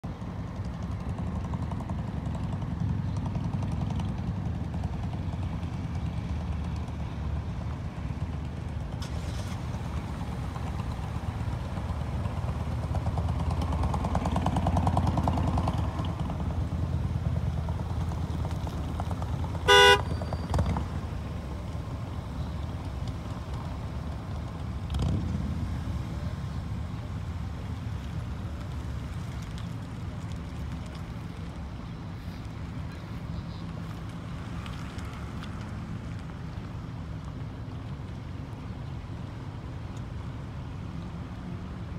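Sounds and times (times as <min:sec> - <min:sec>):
ship engine rumble: 0:00.1 - 0:41.9
ship horn toot: 0:19.7 - 0:20.3.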